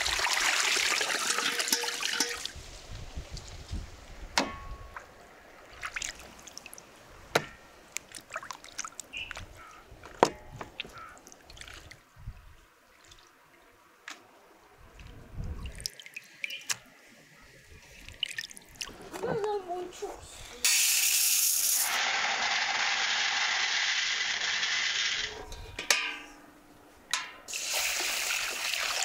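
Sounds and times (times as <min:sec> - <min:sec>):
liquid dripping and trickling: 0:14.9 - 0:16.8, 0:18.0 - 0:19.0.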